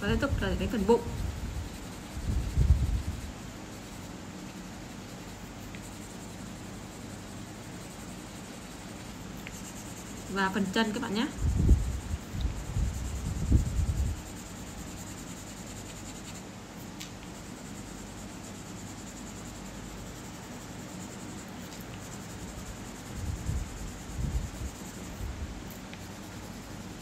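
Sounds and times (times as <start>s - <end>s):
pencil scratching on paper: 12.9s - 16.4s.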